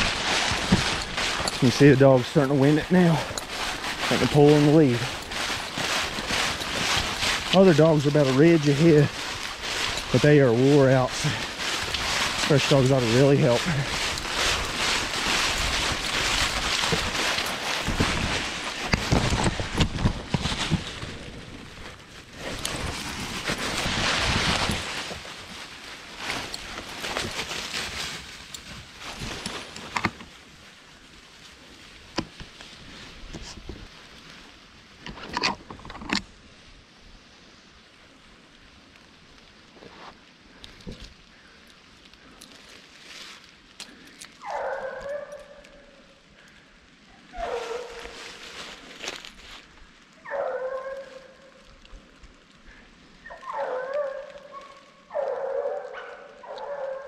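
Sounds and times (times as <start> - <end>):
footsteps crunching through leaves: 0.0 - 35.0, 37.2 - 57.0
sharp leaf crackles: 0.0 - 35.2, 36.1 - 57.0
hound baying: 44.4 - 46.0, 47.3 - 48.1, 50.2 - 51.4, 53.2 - 57.0.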